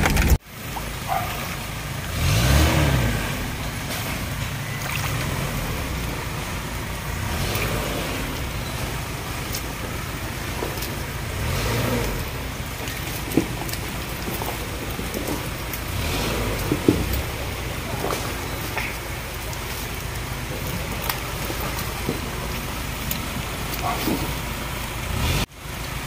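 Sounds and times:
car engine revving: 0.0s - 26.0s.

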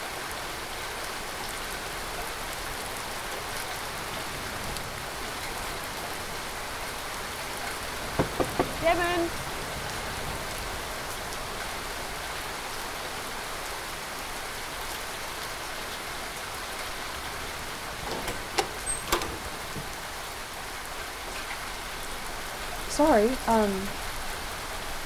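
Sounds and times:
steady rain falling: 0.0s - 25.0s
door latch clicks: 8.2s - 8.8s, 18.0s - 20.0s.

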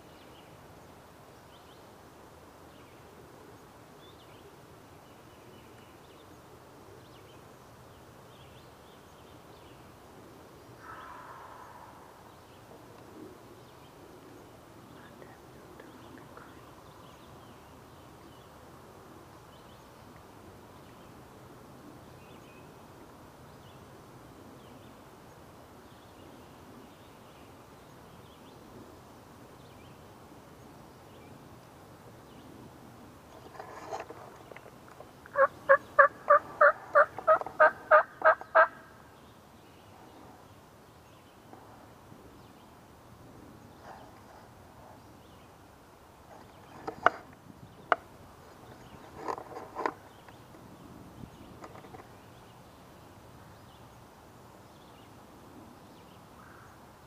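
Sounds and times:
turkey yelping: 35.4s - 38.8s.

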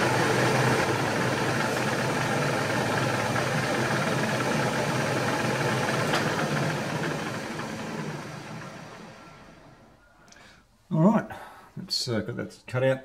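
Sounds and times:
milling machine cutting metal: 0.0s - 9.8s.

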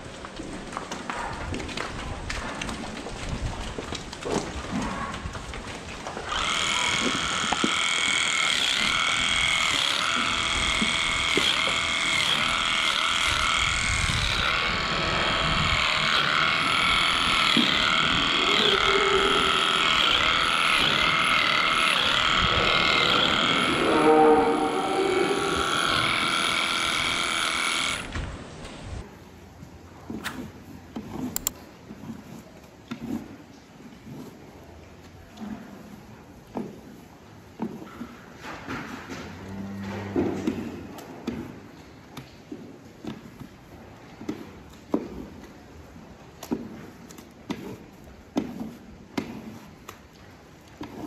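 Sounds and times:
electric clippers whining: 6.2s - 28.3s.

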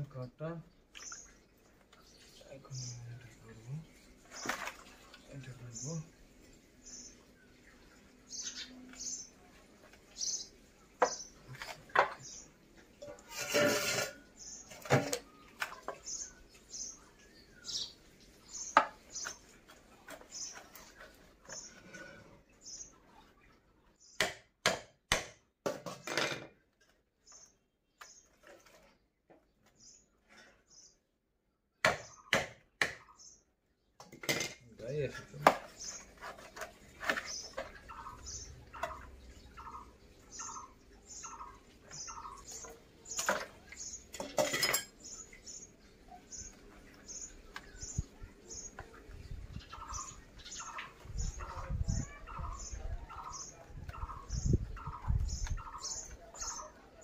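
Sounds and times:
bird chirping: 0.0s - 13.3s, 14.1s - 24.3s, 27.2s - 34.0s, 34.8s - 57.0s.

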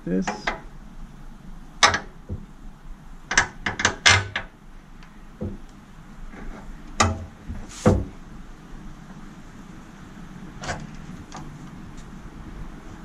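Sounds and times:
knocks and clacks of motorcycle parts: 0.2s - 0.6s, 1.8s - 2.5s, 3.3s - 4.5s, 5.4s - 5.7s, 6.4s - 8.2s.

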